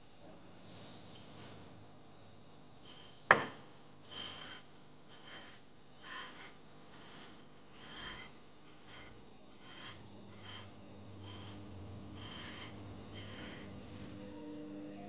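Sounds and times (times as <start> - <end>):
faint breaths or sniffs: 4.0 - 14.2.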